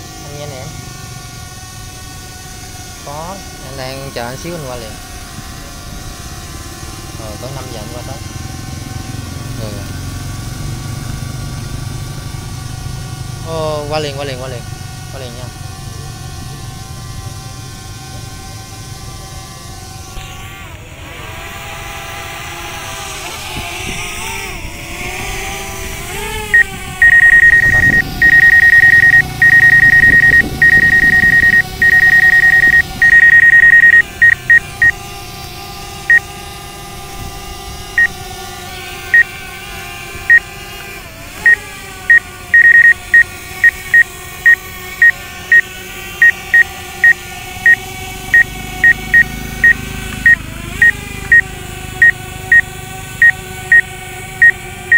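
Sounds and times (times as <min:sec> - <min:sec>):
drone propellers whining: 0:00.0 - 0:54.9
high warning beeps: 0:26.6 - 0:35.0, 0:42.1 - 0:45.6, 0:46.2 - 0:47.8, 0:48.4 - 0:51.4, 0:52.0 - 0:54.6.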